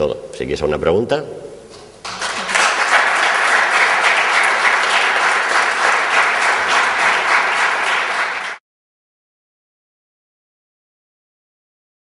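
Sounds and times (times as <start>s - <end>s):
audience applauding: 2.0s - 8.6s.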